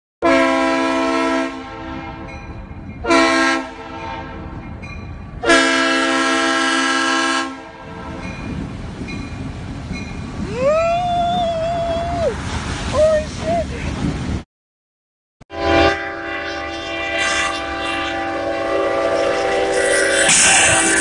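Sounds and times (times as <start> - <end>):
locomotive air horn blasts: 0.2 - 2.3, 3.0 - 4.5, 5.4 - 8.2, 15.5 - 21.0
locomotive rumble: 0.3 - 14.4, 16.1 - 21.0.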